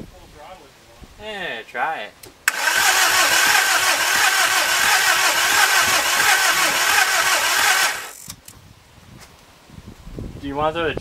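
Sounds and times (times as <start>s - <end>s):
diesel engine cranking: 2.5s - 8.5s.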